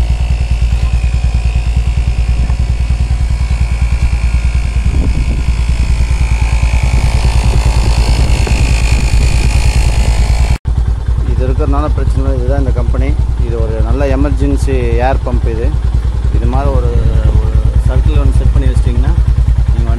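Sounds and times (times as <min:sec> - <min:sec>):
electric tyre inflator running: 0:00.0 - 0:11.0.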